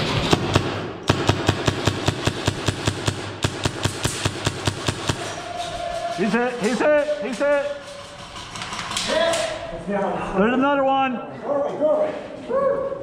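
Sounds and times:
airsoft gun firing: 0.1 - 5.4.

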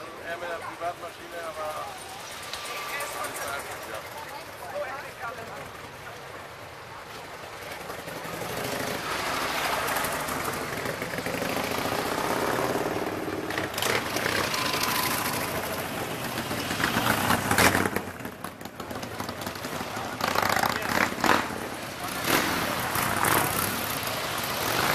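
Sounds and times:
motorcycle riding past: 7.6 - 24.9.

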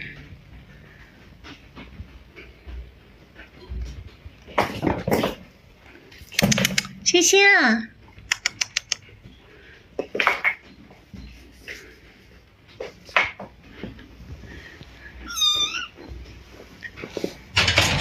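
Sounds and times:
kittens mewing: 15.2 - 16.0.

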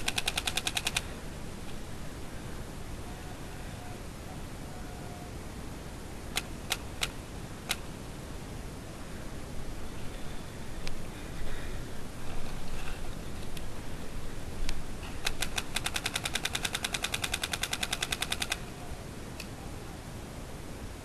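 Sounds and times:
paintball marker firing rapidly: 0.0 - 1.0, 15.2 - 18.6.

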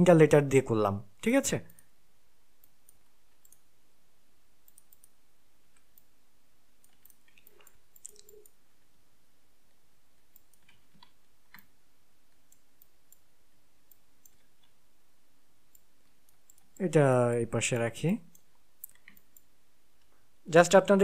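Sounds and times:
faint low hum: 0.0 - 21.0
mouse and keyboard clicks: 6.8 - 8.6, 10.3 - 11.7, 17.7 - 20.1.

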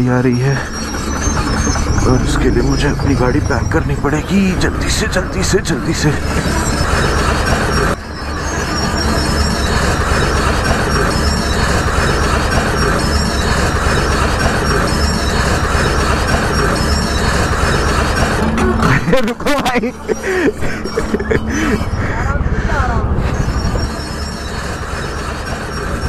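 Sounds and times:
diesel engine running: 0.0 - 26.0
steel tracks clanking and squealing: 0.0 - 26.0.

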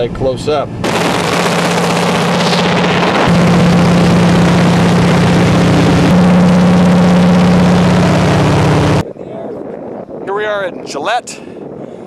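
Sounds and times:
propeller plane engine drone: 0.6 - 9.0.

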